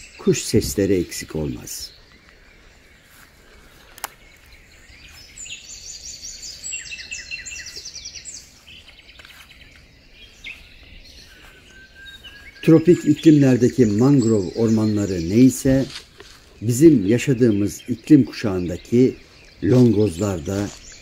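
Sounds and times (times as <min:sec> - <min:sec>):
songbirds trilling: 0:00.0 - 0:21.0
click: 0:04.0 - 0:04.2.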